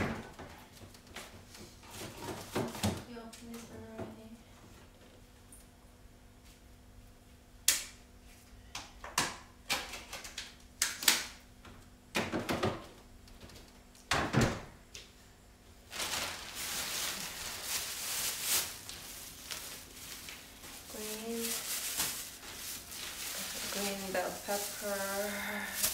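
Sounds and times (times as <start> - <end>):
plastic bags rustling: 15.8 - 25.9.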